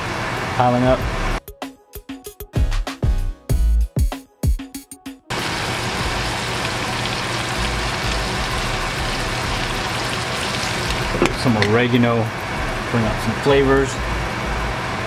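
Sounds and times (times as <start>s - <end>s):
background music: 1.0s - 11.4s
shrimp sizzling in a pan: 5.3s - 12.8s.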